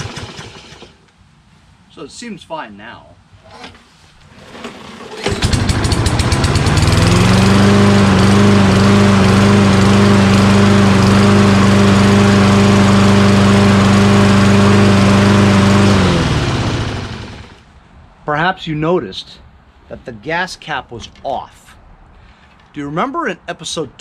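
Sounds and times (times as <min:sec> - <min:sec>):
lawn mower engine starting and running: 0:00.0 - 0:01.1, 0:04.3 - 0:17.7.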